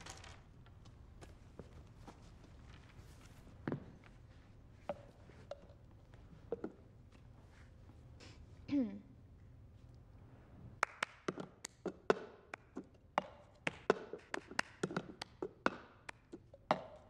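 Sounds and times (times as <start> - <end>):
hand claps: 10.8 - 17.0.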